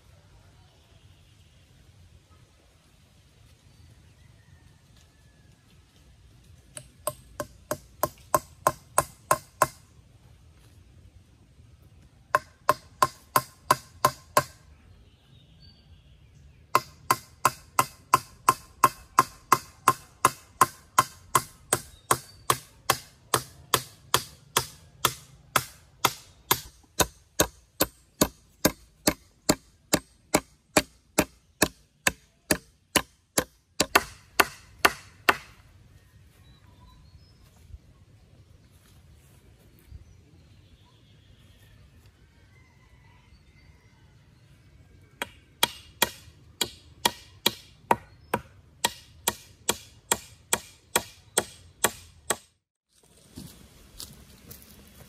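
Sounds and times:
hammer striking nail into wood: 0:06.8 - 0:09.8, 0:12.4 - 0:14.6, 0:16.7 - 0:35.6, 0:45.2 - 0:52.5.

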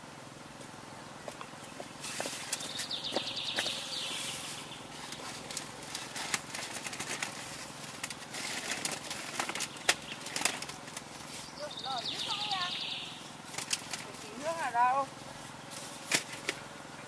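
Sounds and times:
steady rustling: 0:01.2 - 0:16.8
bird chirping trill: 0:01.6 - 0:05.2, 0:09.5 - 0:13.5
sharp clicks and crackles: 0:05.0 - 0:11.3, 0:13.5 - 0:14.5.

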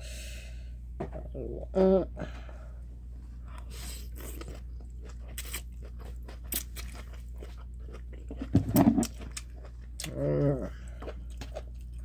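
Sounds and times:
steady low hum: 0:00.0 - 0:12.0
person chewing and slurping noodles: 0:03.6 - 0:12.0.

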